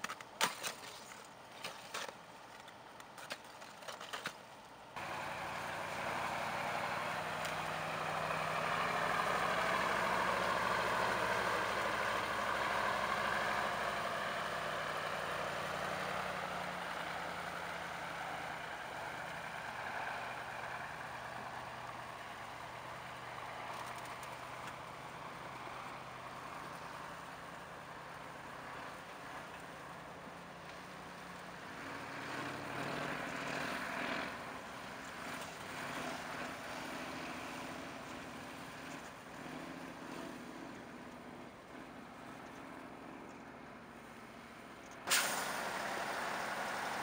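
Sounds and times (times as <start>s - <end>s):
crowbars striking ice: 0.0s - 2.2s
diesel truck driving past: 5.0s - 47.0s.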